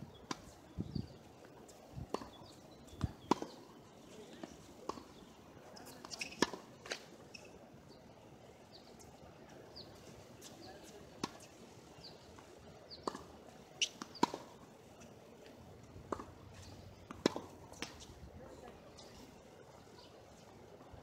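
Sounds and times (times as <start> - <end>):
tennis ball bouncing on hard court: 2.1 - 3.7, 4.4 - 5.2, 6.0 - 7.0, 11.2 - 11.4, 13.0 - 14.5, 16.0 - 18.1.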